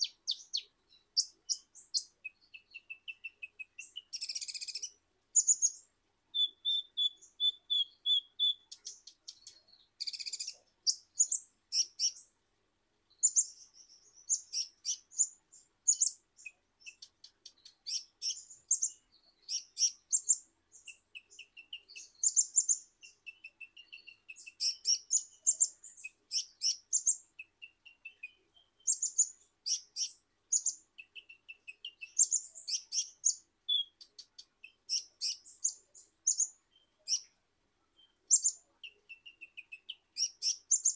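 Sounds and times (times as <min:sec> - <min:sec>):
bird chirping and twittering: 0:00.0 - 0:12.3, 0:13.1 - 0:40.9.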